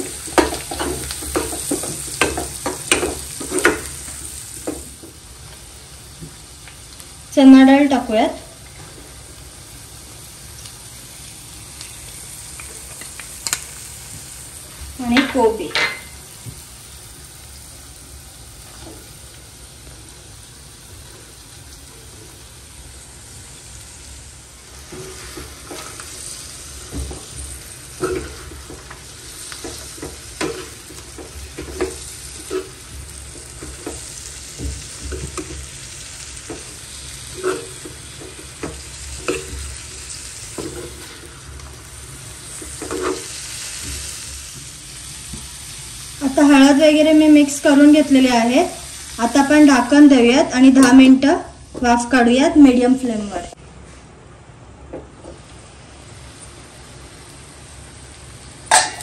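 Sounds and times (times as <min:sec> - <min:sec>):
food sizzling in oil: 0:00.0 - 0:53.6, 0:55.4 - 0:59.0
spatula scraping a pan: 0:24.8 - 0:35.7, 0:36.4 - 0:41.5, 0:42.4 - 0:44.2.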